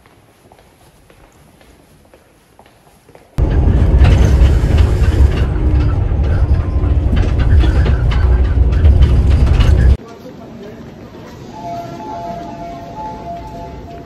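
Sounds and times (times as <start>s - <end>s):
rail clatter and rattling: 3.4s - 10.0s
subway train low rumble: 3.4s - 14.0s.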